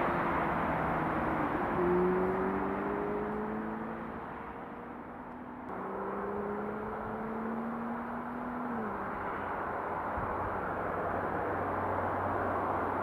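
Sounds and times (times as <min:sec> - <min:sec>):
vehicle engine passing by: 0:00.0 - 0:04.8, 0:05.7 - 0:09.6
roar of passing traffic: 0:00.0 - 0:13.0.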